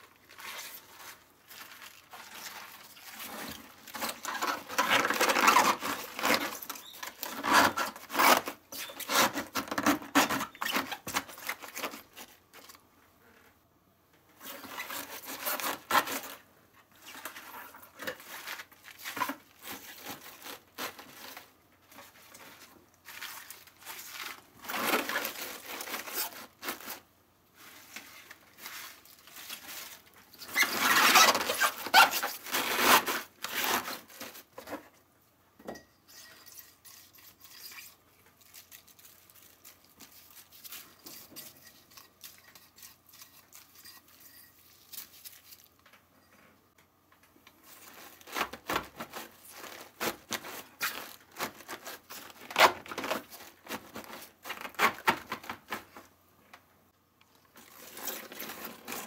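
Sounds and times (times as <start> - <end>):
cabbage leaves and gloves rustling: 0.0 - 8.3, 18.2 - 34.5.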